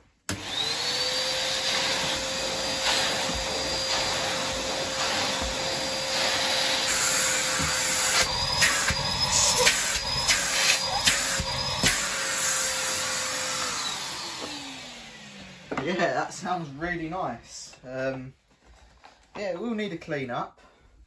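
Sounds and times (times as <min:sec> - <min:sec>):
vacuum cleaner running on carpet: 0:00.3 - 0:15.8.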